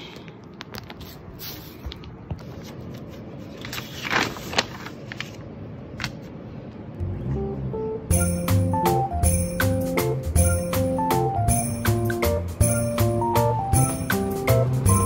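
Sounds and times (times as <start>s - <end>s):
paper sheet rustling: 0.7s - 6.4s.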